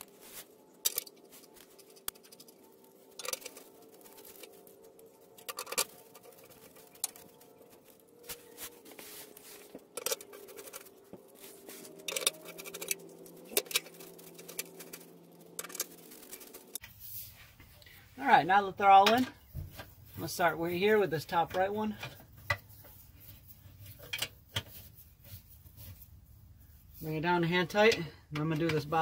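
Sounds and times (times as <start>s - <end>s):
metal bolts clicking and scraping: 0.8s - 8.4s, 9.6s - 16.8s, 23.8s - 24.8s.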